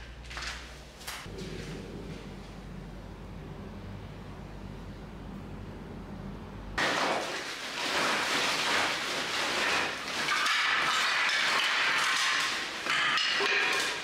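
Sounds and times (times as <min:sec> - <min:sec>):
low steady hum: 0:00.0 - 0:06.8
plastic bag rustling: 0:06.8 - 0:14.0
wood pieces clattering on tiles: 0:06.8 - 0:14.0.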